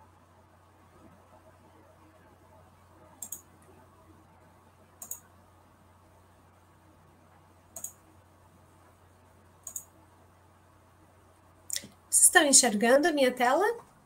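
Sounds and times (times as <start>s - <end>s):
faint low hum: 0.0s - 14.0s
computer mouse double clicking: 3.2s - 3.5s, 5.0s - 5.3s, 7.8s - 8.0s, 9.6s - 9.9s.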